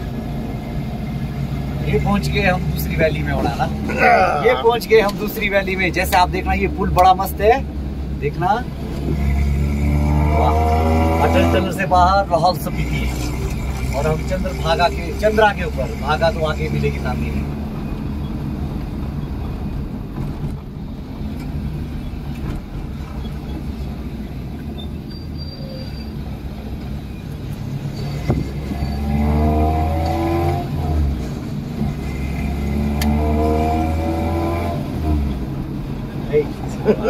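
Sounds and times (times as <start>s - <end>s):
car engine revving: 0.0s - 20.4s, 26.2s - 37.0s.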